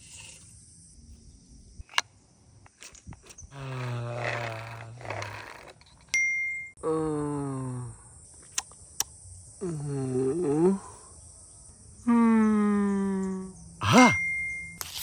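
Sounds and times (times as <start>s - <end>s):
bell-like ding: 14.1s - 14.8s.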